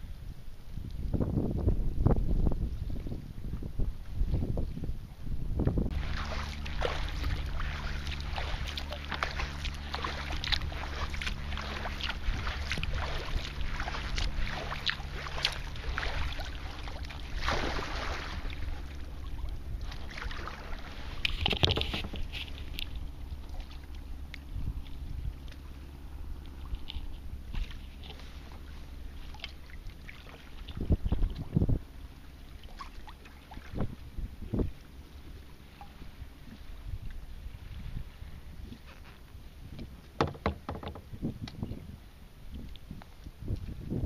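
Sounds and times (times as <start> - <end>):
paddle splashing in water: 5.6 - 43.8
water dripping off paddle: 5.9 - 25.8, 26.4 - 31.4.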